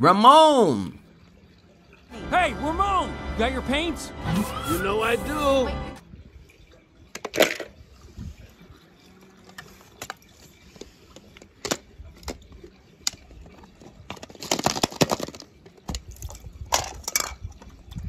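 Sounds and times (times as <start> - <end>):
splashing and clattering: 6.6 - 8.4, 9.3 - 18.0
toy cars clicking and knocking: 14.0 - 16.1.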